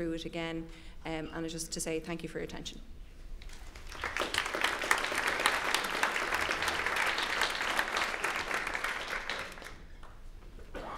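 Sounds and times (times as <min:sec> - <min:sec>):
audience applause: 0:03.5 - 0:09.9.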